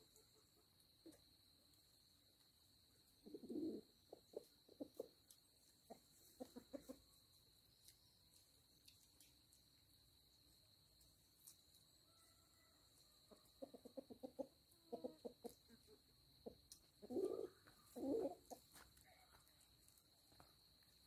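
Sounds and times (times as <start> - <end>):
chicken clucking: 3.0 - 8.1, 11.8 - 18.8.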